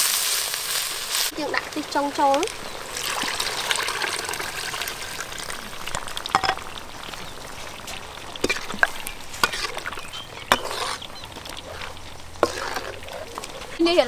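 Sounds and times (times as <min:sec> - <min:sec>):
liquid sizzling in a wok: 0:00.0 - 0:14.0
spatula scraping a wok: 0:05.5 - 0:14.0.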